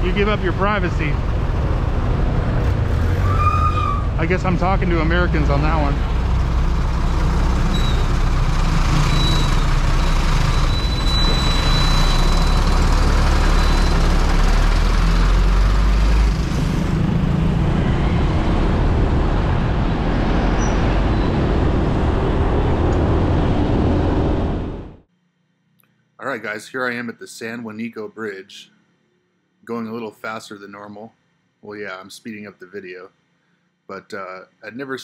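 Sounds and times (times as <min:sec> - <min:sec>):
motorbike engine: 0:00.0 - 0:25.0
rushing road noise: 0:00.0 - 0:25.1.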